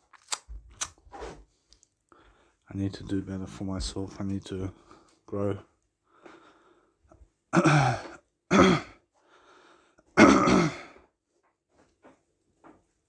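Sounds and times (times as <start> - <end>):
breath: 2.1 - 2.6, 4.8 - 5.2, 6.0 - 7.2, 9.1 - 10.2
man clearing his throat: 7.5 - 9.0, 10.1 - 11.0.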